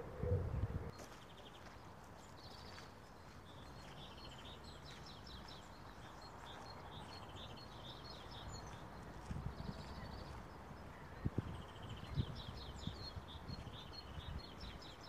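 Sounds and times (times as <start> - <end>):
low outdoor rumble: 0.0 - 0.9
songbird chirping: 0.1 - 15.0.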